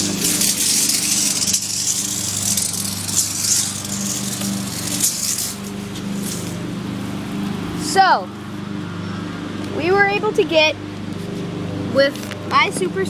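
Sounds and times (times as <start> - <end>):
tape measure scraping on asphalt: 0.0 - 7.5, 12.1 - 12.5.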